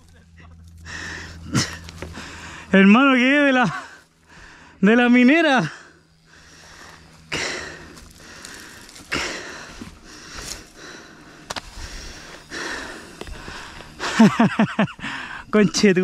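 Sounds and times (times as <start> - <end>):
person breathing hard: 0.8 - 2.8, 4.0 - 4.8, 5.7 - 14.3, 15.0 - 15.5.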